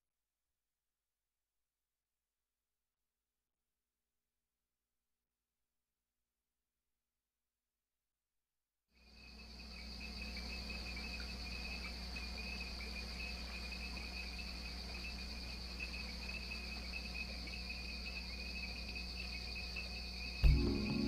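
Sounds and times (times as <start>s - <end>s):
night insect chorus: 9.0s - 21.0s
low steady hum: 10.0s - 21.0s.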